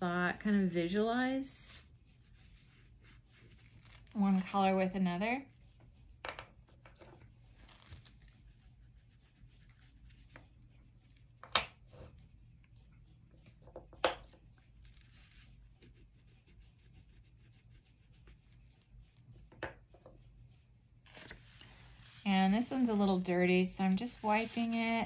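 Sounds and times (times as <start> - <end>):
oil pastels scratching on paper: 0.0 - 5.4, 7.4 - 11.3, 14.6 - 19.5, 21.0 - 25.0.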